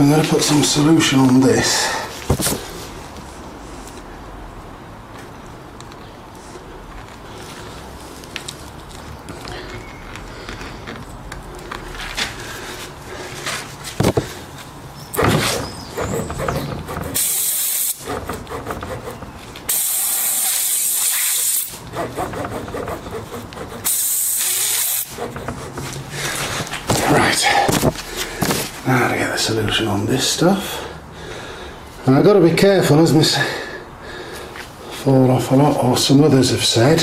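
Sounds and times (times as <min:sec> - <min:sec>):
tools knocking and rustling: 0:13.9 - 0:14.4, 0:25.1 - 0:27.1
air hissing from tyre: 0:17.2 - 0:18.0, 0:19.7 - 0:21.8, 0:23.8 - 0:25.2.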